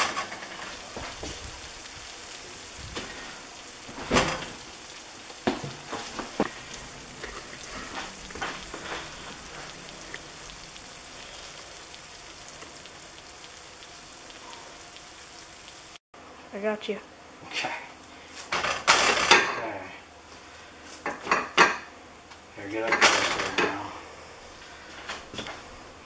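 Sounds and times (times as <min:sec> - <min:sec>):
casserole sizzling in glass dish: 0:00.0 - 0:16.0.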